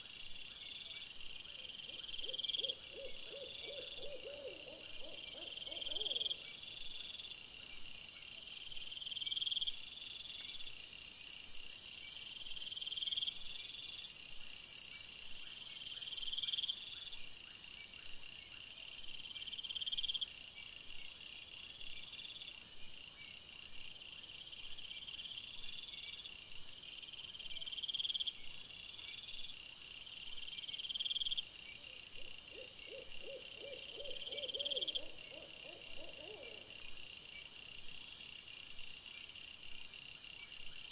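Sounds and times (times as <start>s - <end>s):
faint low pulsed insect call: 0.0s - 40.9s.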